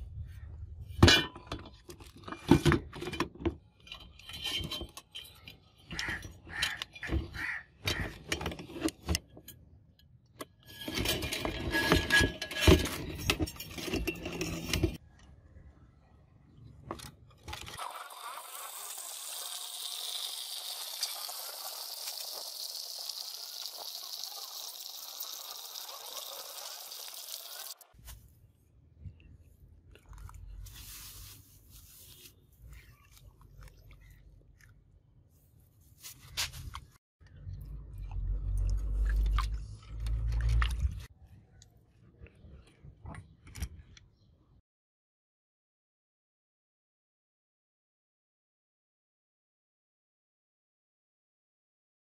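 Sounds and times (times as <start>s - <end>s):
metal bars clinking: 3.8s - 7.0s.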